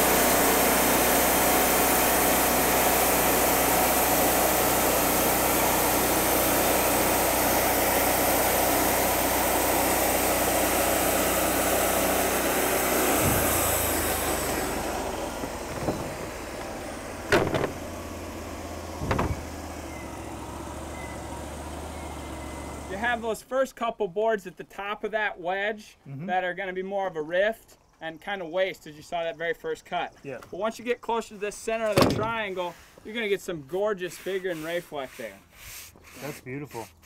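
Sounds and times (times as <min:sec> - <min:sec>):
bandsaw blade cutting log: 0:00.0 - 0:18.1, 0:33.9 - 0:37.0
engine running: 0:00.0 - 0:23.4
sharp knocks: 0:15.7 - 0:16.4, 0:17.3 - 0:18.0, 0:19.0 - 0:19.5.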